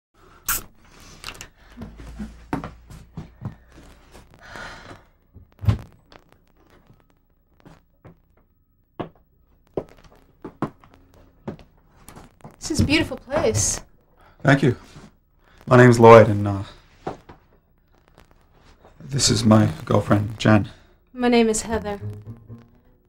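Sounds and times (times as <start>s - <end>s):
footsteps: 1.6s - 13.9s, 16.7s - 19.0s, 21.7s - 23.0s
thuds: 5.3s - 6.0s.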